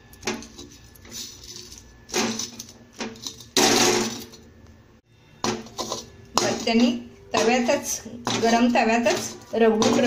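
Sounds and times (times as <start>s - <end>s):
pestle knocking and scraping: 5.4s - 10.0s.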